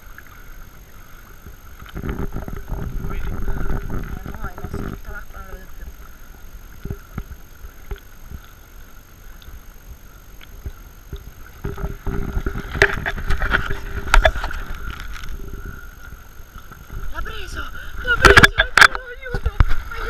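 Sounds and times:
sea water lapping and sloshing: 0.0 - 20.0
water churning rumble: 0.0 - 20.0
small knocks on camera: 10.5 - 15.5.

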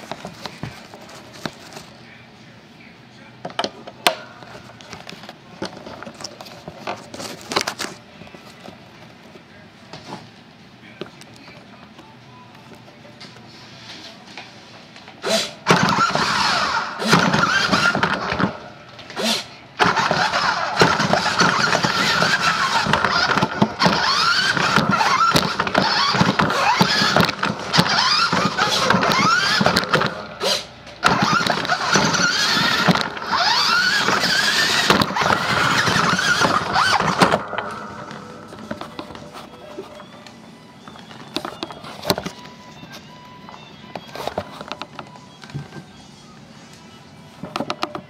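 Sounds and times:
toy truck motor whining: 15.2 - 45.0.

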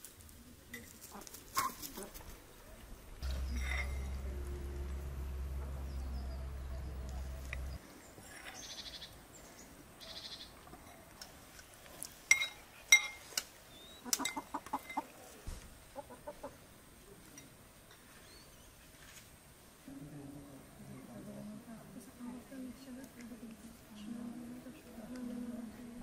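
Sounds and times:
hens clucking: 0.9 - 7.8, 14.0 - 15.1, 15.8 - 16.7
low steady hum: 2.3 - 10.0
spoons clinking against bowls: 12.3 - 13.2.

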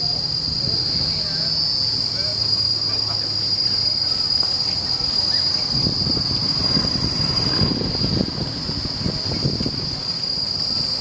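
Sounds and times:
insects droning: 0.0 - 11.0
low rumble: 5.0 - 10.1.

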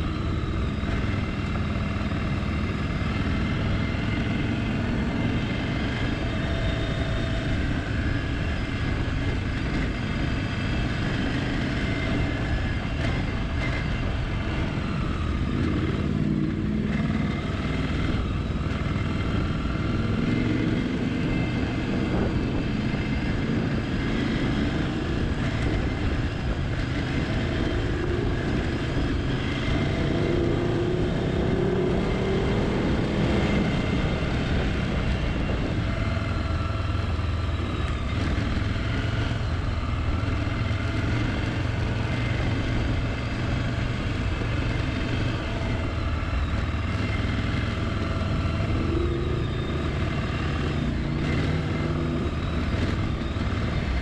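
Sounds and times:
motorcycle engine revving: 0.0 - 54.0
wind noise: 0.0 - 54.0.

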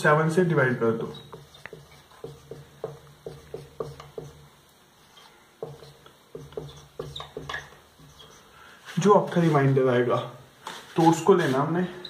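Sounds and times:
marker pen on whiteboard: 1.0 - 9.7.

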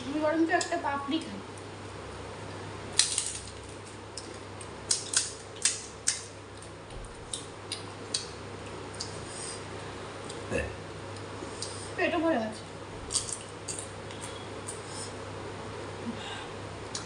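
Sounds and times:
crisp shells crunching: 2.9 - 5.8.

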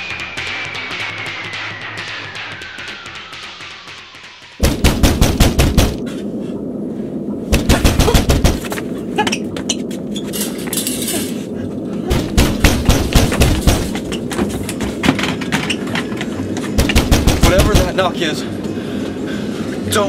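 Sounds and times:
rapid bangs: 0.0 - 6.1, 7.5 - 8.8, 12.1 - 18.2
low rumbling noise: 3.7 - 20.0.

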